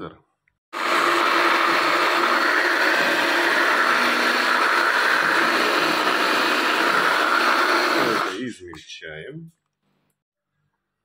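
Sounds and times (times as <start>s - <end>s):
electric blender chopping: 0.7s - 8.4s.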